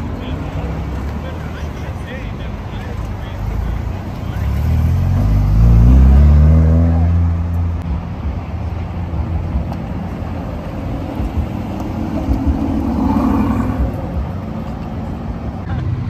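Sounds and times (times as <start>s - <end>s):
sports car engine moving off: 3.0s - 15.7s
turbocharged car engine pulling away: 3.4s - 7.8s.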